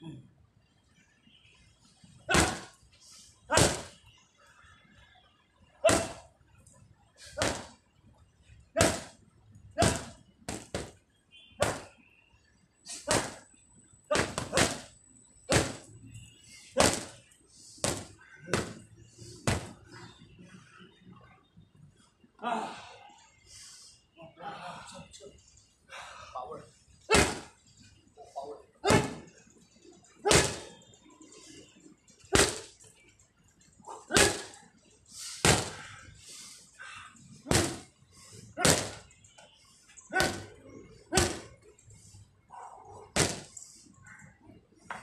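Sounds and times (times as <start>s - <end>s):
boxing glove punches: 2.3s - 2.7s, 3.5s - 3.9s, 5.9s - 6.2s, 7.4s - 7.7s, 8.8s - 9.1s, 9.8s - 11.0s, 11.6s - 11.9s, 13.1s - 13.4s, 14.1s - 14.9s, 15.5s - 15.9s, 16.8s - 17.2s, 17.8s - 18.8s, 19.5s - 19.8s, 27.1s - 27.5s, 28.8s - 29.3s, 30.3s - 30.7s, 32.4s - 32.7s, 34.1s - 34.6s, 35.4s - 35.8s, 37.5s - 37.9s, 38.6s - 39.0s, 40.2s - 40.5s, 41.1s - 41.5s, 43.2s - 43.5s.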